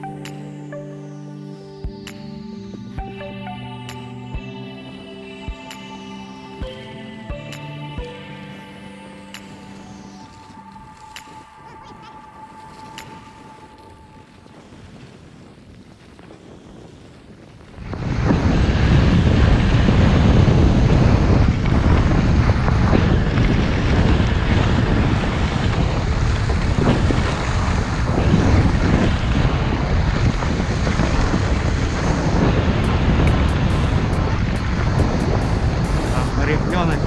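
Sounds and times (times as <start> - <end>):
wind rushing over microphone: 9.2 - 37.0
skis scraping over snow: 9.7 - 37.0.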